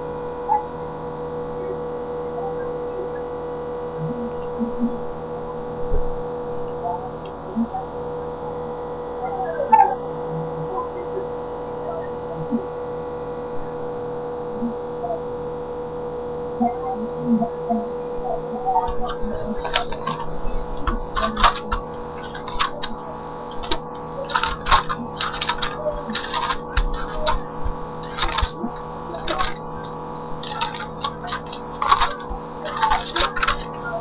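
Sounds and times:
electrical hum: 0.0s - 34.0s
scratchy rustles and clicks: 18.8s - 34.0s.

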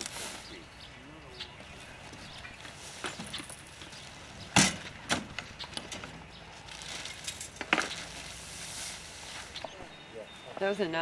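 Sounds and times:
wheelbarrow knocks and clunks: 4.4s - 6.2s.

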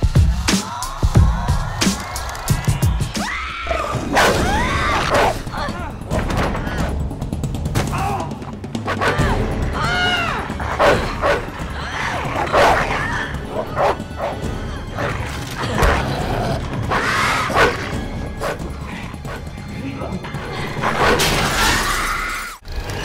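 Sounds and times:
dramatic film score: 0.0s - 23.0s
dog barking: 10.7s - 11.5s, 17.4s - 18.6s.

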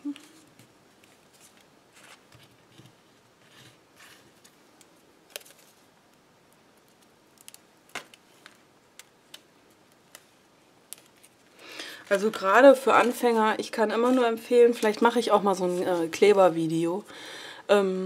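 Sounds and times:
soft paper rustles: 0.0s - 4.6s, 5.3s - 5.9s, 6.7s - 16.8s
small sharp clicks and ticks: 6.5s - 10.3s.

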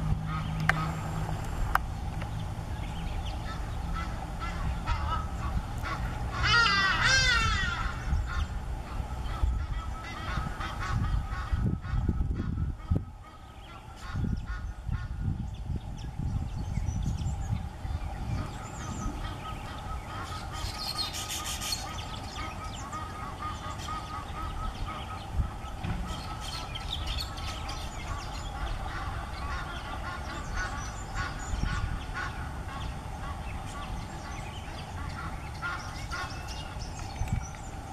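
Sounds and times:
low wind rumble: 0.0s - 37.9s
waterfowl honking: 0.2s - 1.1s, 3.3s - 15.2s, 18.4s - 36.8s
bird chirps and chatter: 16.6s - 37.8s.

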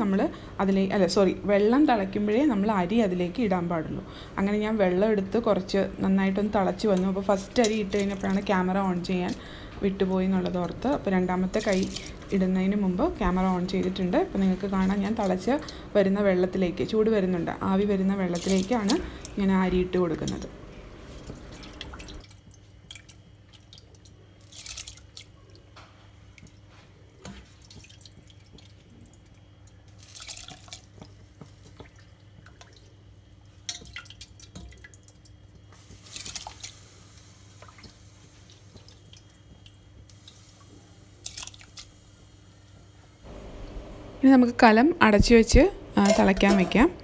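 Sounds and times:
water drips and bubbles: 21.1s - 36.8s, 37.5s - 41.8s.

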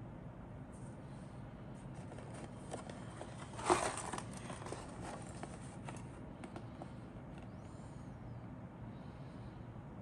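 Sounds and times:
low steady background hum: 0.0s - 10.0s
cardboard box clicks and rustles: 2.0s - 6.7s.

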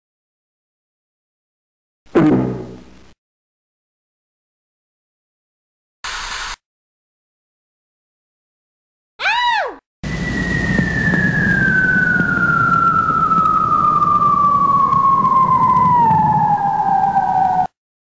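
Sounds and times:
cartoon whistle sliding down: 9.2s - 17.7s
low rushing noise: 10.0s - 17.7s.

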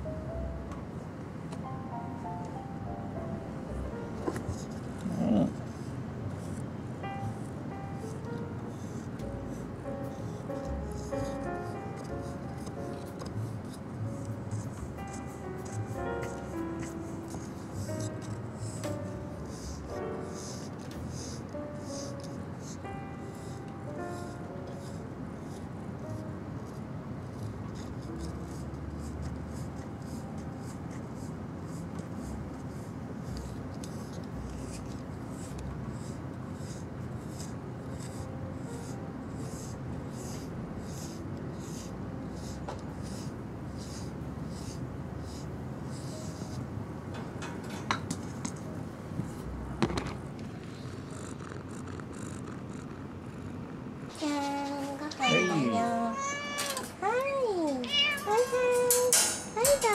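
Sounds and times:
brush stroking cat fur: 3.8s - 47.4s, 48.1s - 59.9s
cat purring: 4.5s - 5.9s, 50.2s - 56.6s
cat meowing loudly: 55.1s - 56.9s, 57.8s - 58.7s.

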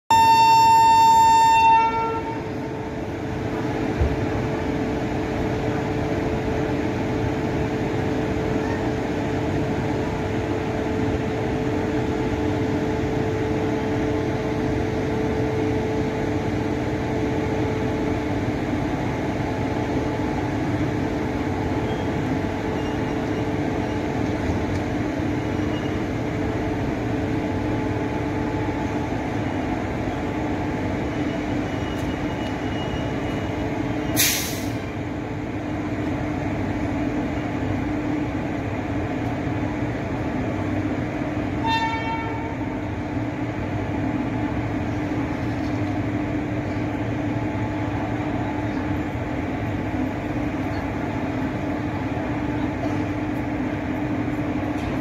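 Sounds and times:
train horn: 0.1s - 2.5s, 41.6s - 42.7s
train wheels rumbling on rail: 0.1s - 55.0s.

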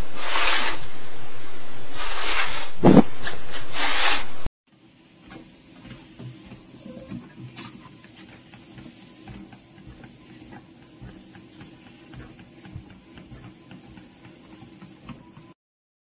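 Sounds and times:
treadmill humming: 4.7s - 15.6s.

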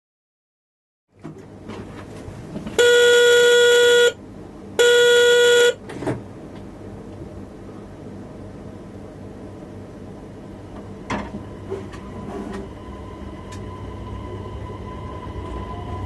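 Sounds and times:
steady low train hum: 1.1s - 16.0s
train warning signal blasts: 2.8s - 4.2s, 4.8s - 5.8s.

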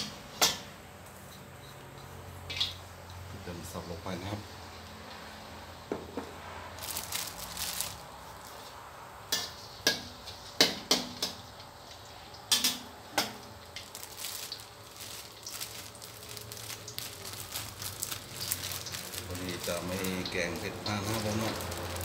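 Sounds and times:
garlic sizzling in hot oil: 13.7s - 22.0s.

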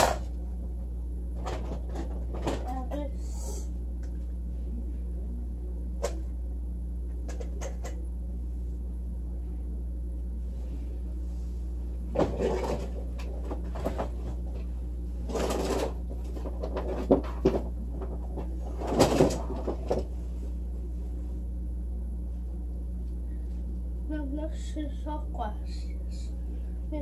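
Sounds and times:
steady low hum: 0.0s - 27.0s
rustling and knocking: 15.3s - 20.2s.

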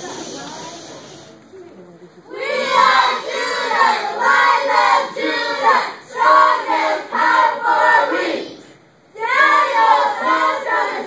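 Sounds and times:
children chanting a cheer: 2.3s - 8.6s, 9.2s - 11.0s.

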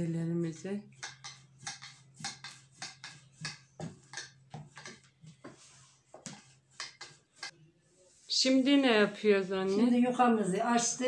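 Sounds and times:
rolling pin knocking on board: 1.0s - 5.6s.

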